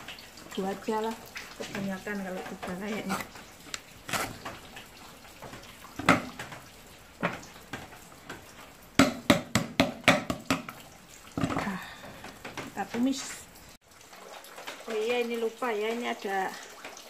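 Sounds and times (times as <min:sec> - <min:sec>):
tap running into steel sink: 0:06.0 - 0:06.6
cleaver chopping on a board: 0:09.0 - 0:10.7.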